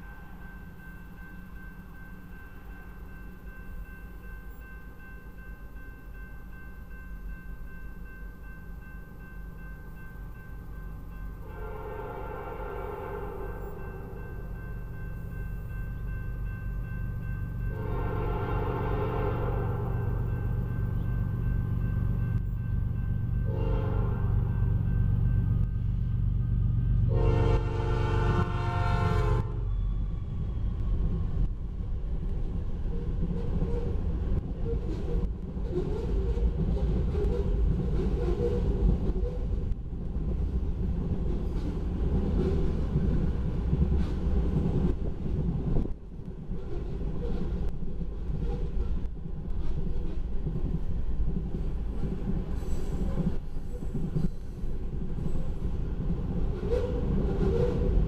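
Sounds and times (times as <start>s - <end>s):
freight train rumbling past: 0.0s - 58.0s
train horn chord: 11.4s - 14.1s, 17.7s - 20.2s, 23.4s - 24.5s, 27.0s - 29.7s.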